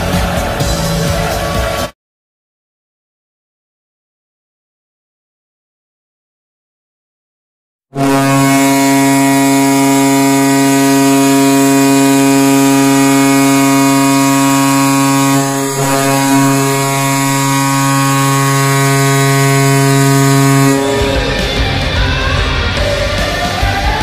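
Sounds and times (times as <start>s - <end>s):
deep goal horn blast: 7.9s - 24.0s.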